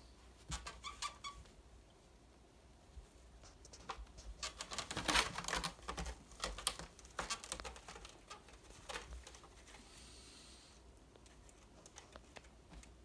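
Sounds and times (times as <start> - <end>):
cat claws scratching rope post: 3.6 - 9.8.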